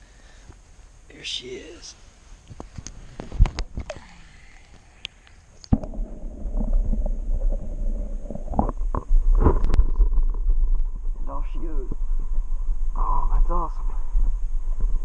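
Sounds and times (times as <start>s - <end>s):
muffled underwater churning: 3.0s - 15.0s.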